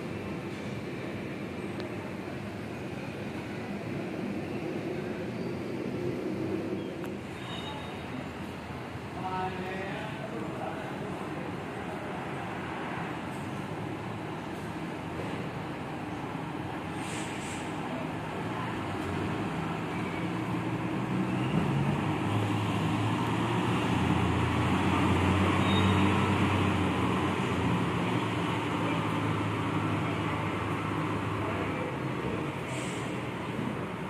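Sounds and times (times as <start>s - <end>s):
bus diesel engine driving past: 0.0s - 34.0s.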